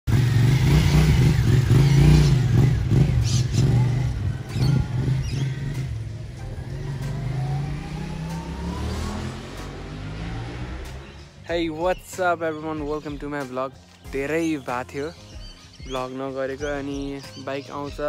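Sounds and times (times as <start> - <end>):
motorcycle engine revving: 0.1 - 11.4.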